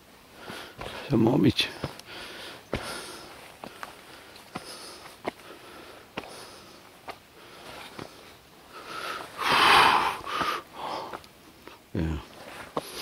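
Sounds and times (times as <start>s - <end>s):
person breathing hard: 0.3s - 1.1s, 1.7s - 11.2s
footsteps on rock: 0.4s - 8.4s, 10.1s - 11.8s, 12.4s - 13.0s.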